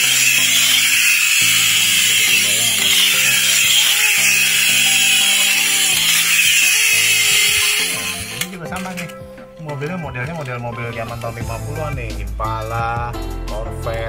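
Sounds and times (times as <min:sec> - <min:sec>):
toy car whirring: 0:00.0 - 0:09.2
background music: 0:00.0 - 0:14.0.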